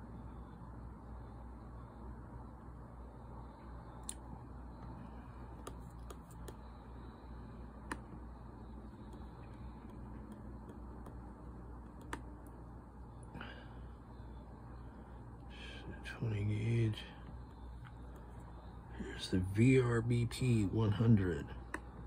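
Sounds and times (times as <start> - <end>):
low steady hum: 0.0 - 22.0
laptop clicks: 8.9 - 12.6.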